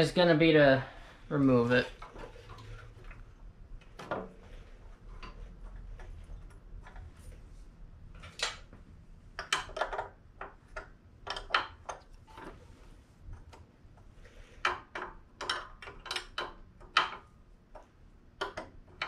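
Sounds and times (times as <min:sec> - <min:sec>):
metallic clicks of wrench and bolts: 0:09.4 - 0:12.1, 0:14.6 - 0:19.0.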